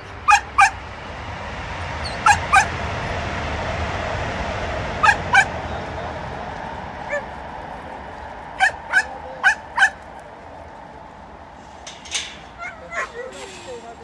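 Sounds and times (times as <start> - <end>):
dogs barking: 0.0 - 0.9, 2.0 - 2.8, 5.0 - 6.0, 7.0 - 7.5, 8.4 - 10.5, 11.8 - 14.0.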